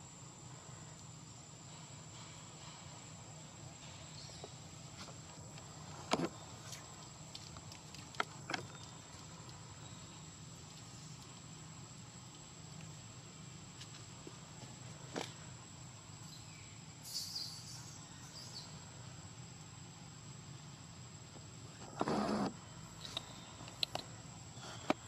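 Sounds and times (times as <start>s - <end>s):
faint background hum: 0.0s - 25.0s
high-pitched insect drone: 16.0s - 19.4s.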